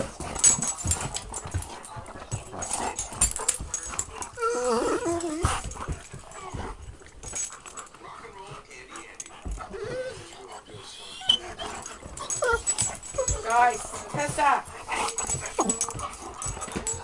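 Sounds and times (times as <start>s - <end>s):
dog scuffling and rustling: 0.0s - 17.0s
dog whining: 3.9s - 5.7s, 9.7s - 14.0s, 14.9s - 17.0s.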